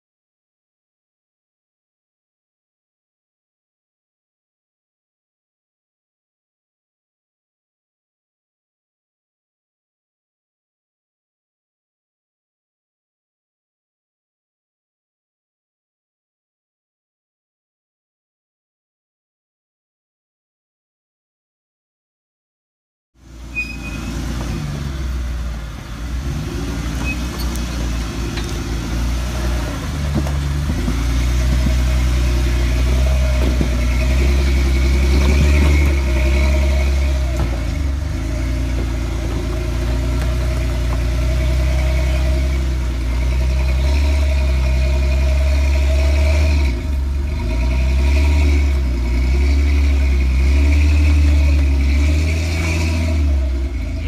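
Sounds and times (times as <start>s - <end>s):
jeep engine running at low revs: 23.2s - 54.0s.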